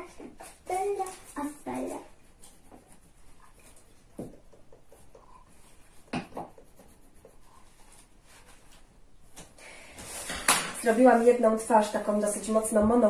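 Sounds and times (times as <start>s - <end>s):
pen scratching on paper: 4.8s - 8.1s.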